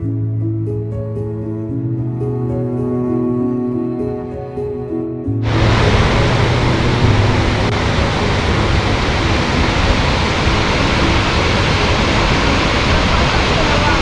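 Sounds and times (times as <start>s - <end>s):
waterfall rushing: 5.4s - 14.0s.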